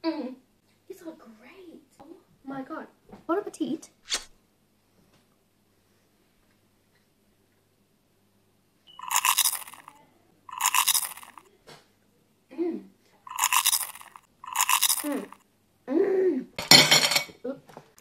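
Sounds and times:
crunchy chewing: 9.0s - 11.5s, 13.3s - 15.4s.

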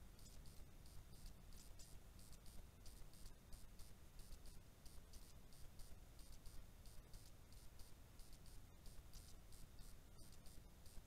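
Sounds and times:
faint high-pitched ticks: 0.0s - 11.0s.

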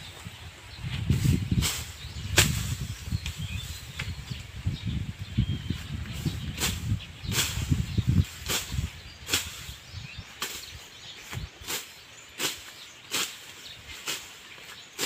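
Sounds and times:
leaves and grass rustling: 0.0s - 15.0s
knife swishing through weeds: 0.8s - 4.2s, 6.2s - 9.8s, 10.4s - 15.0s.

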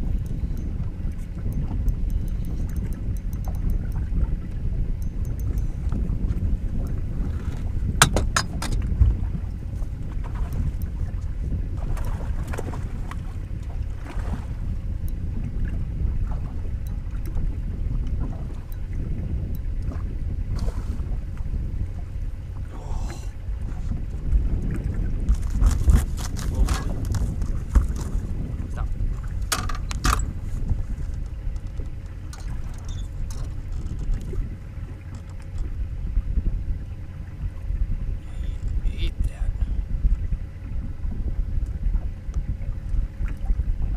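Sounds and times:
water lapping against boat hull: 0.0s - 43.9s
wind rumbling on microphone: 0.0s - 43.9s
faint ticks: 0.2s - 4.0s, 5.0s - 6.0s
water chop: 7.9s - 9.2s.

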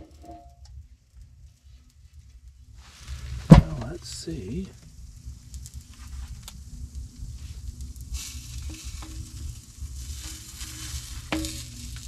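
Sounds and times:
steady low rumble: 0.6s - 12.0s
pizza sizzling on hot steel: 2.8s - 12.0s.

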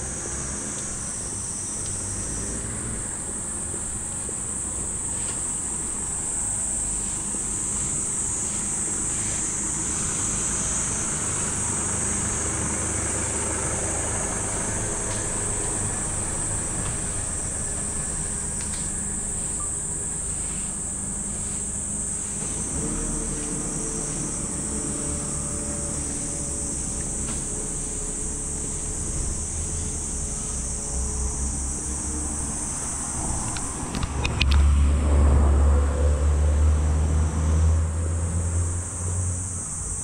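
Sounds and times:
insect buzzing: 0.0s - 34.8s, 37.0s - 40.0s
truck engine humming: 0.0s - 40.0s.

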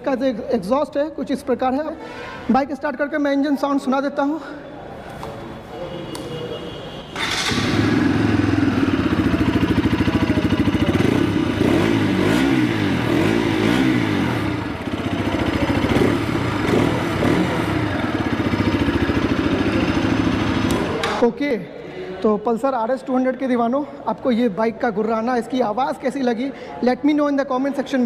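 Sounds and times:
motorcycle engine starting and idling: 7.2s - 21.2s.

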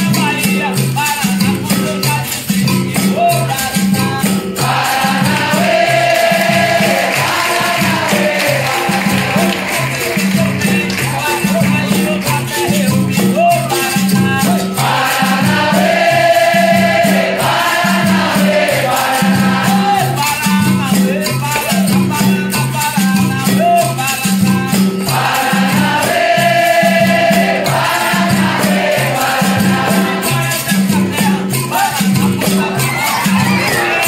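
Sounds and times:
percussion beat: 0.0s - 34.0s
shaken rattle: 0.0s - 34.0s
group chorus singing: 4.5s - 11.1s, 14.6s - 20.3s, 25.0s - 34.0s.

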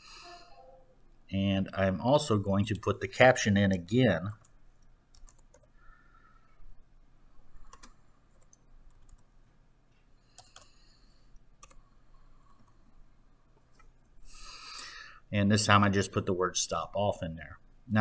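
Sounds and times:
computer keyboard keystrokes: 3.7s - 5.8s, 7.6s - 9.3s, 10.4s - 10.7s, 11.6s - 11.8s.

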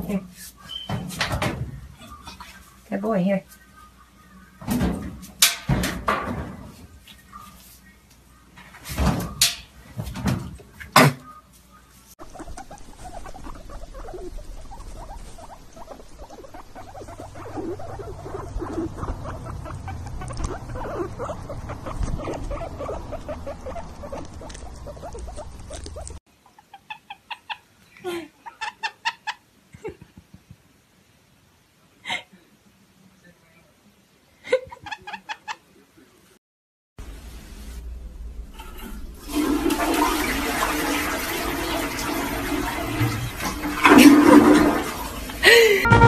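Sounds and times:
guinea pig squeaking: 0.6s - 1.0s, 11.2s - 27.6s, 34.8s - 35.6s
toilet flushing: 38.6s - 45.9s.

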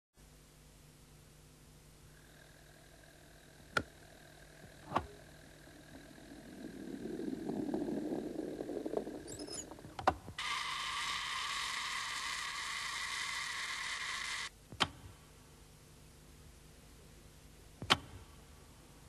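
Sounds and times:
whirring buzz: 1.9s - 15.2s
low rubbing rumble: 2.2s - 10.4s.

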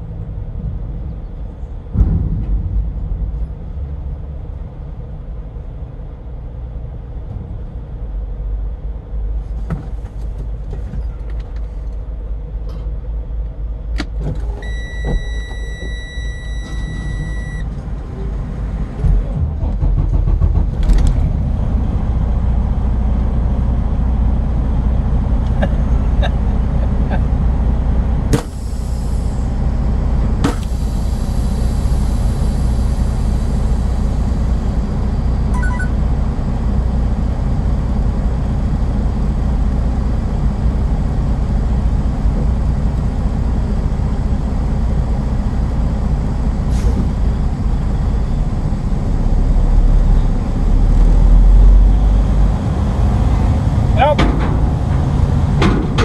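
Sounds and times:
truck engine idling: 0.0s - 56.0s
high beep: 14.6s - 17.7s, 35.5s - 36.0s.

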